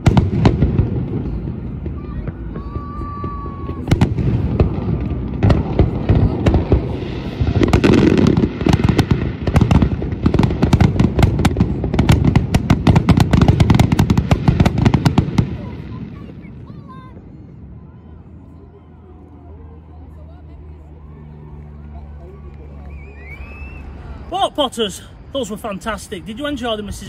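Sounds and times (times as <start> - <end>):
firework crackle: 0.0 - 18.2
firework whistle: 22.8 - 24.0.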